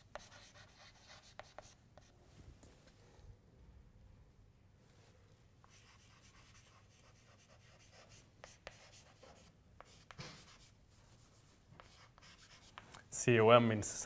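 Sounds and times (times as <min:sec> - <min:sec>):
chalk scratching on blackboard: 0:00.0 - 0:02.1, 0:05.6 - 0:12.9
chalk tapping on board: 0:00.1 - 0:01.8, 0:05.7 - 0:12.9.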